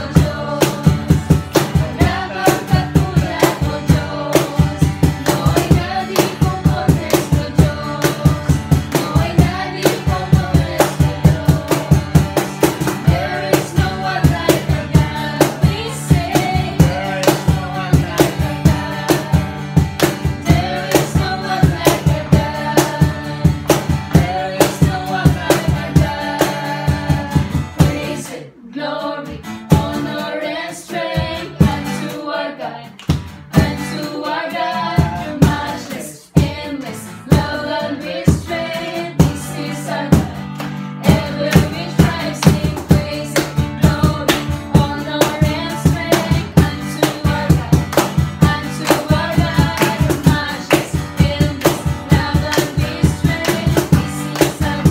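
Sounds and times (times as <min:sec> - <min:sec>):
group singing: 0:00.0 - 0:54.9
strummed acoustic guitar: 0:00.0 - 0:54.9
hand claps: 0:05.2 - 0:10.1, 0:16.3 - 0:22.2, 0:33.0 - 0:33.4, 0:40.5 - 0:54.9.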